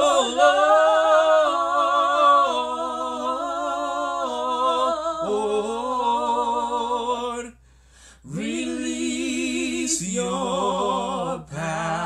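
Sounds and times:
man and woman singing gospel: 0:00.0 - 0:07.5, 0:08.2 - 0:12.0.

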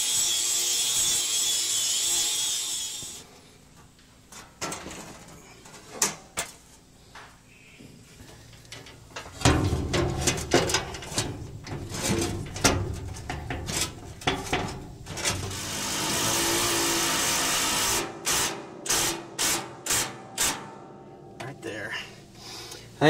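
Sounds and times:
small power tool running: 0:15.5 - 0:18.1.

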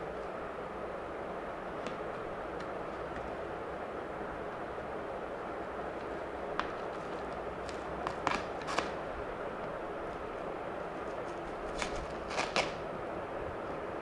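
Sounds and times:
steady background hiss: 0:00.0 - 0:14.0
plastic bag crinkling: 0:11.6 - 0:12.8.

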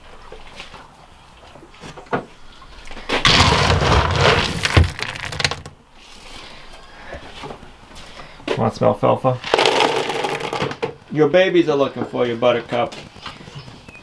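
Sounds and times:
feed pellets rattling and pouring: 0:03.2 - 0:05.7, 0:09.5 - 0:10.7.

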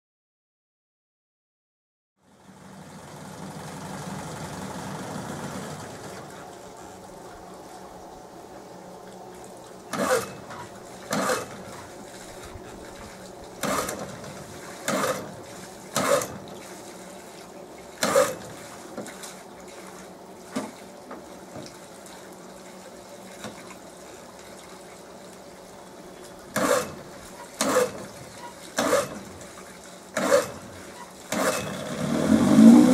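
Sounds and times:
running water hiss: 0:02.4 - 0:32.9
pull-start cord yanked: 0:13.6 - 0:14.1, 0:26.6 - 0:27.0, 0:27.6 - 0:28.0, 0:31.3 - 0:31.8.

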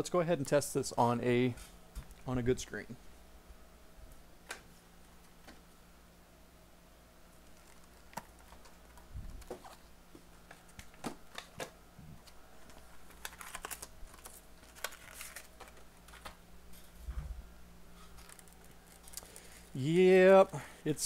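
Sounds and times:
soft low thump: 0:17.0 - 0:17.4.

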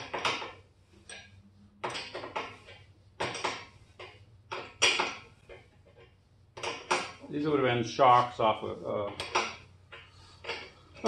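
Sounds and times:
wrench clanking on metal: 0:00.0 - 0:05.3, 0:09.0 - 0:11.0.

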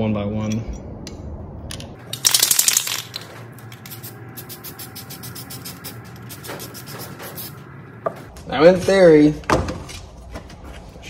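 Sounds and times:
spray paint can hissing: 0:03.7 - 0:07.5.

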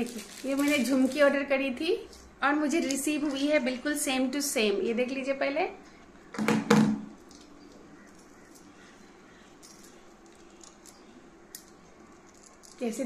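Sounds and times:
metal earrings clicking: 0:09.6 - 0:13.0.

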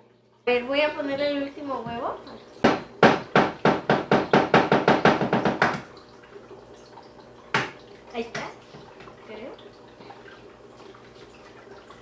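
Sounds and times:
egg knocking on plastic bowl: 0:02.6 - 0:05.9.

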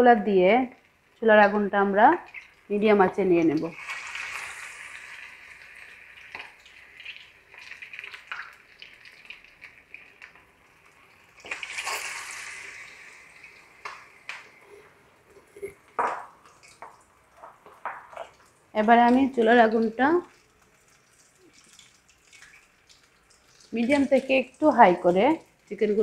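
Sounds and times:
chicken deep-frying in oil: 0:00.0 - 0:15.2, 0:15.8 - 0:26.0
crackles and pops of frying: 0:00.0 - 0:26.0.

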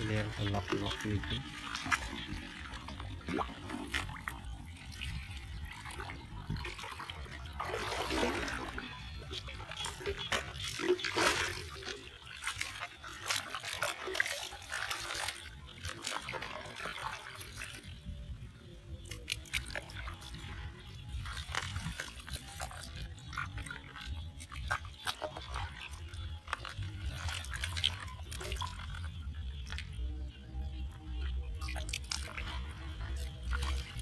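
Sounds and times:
hands splashing in water: 0:00.0 - 0:17.4
crabs clicking and crunching: 0:18.9 - 0:34.0.

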